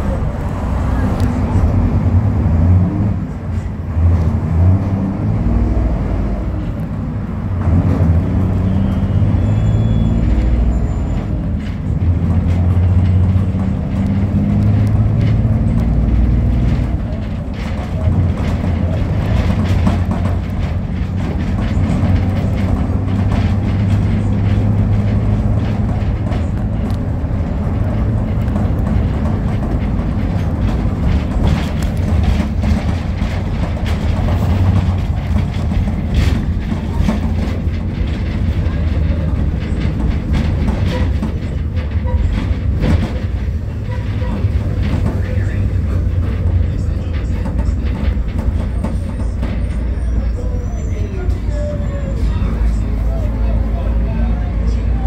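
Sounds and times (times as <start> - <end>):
vehicle rumble from inside: 0.0 - 55.0
body rattles and knocks: 7.6 - 55.0.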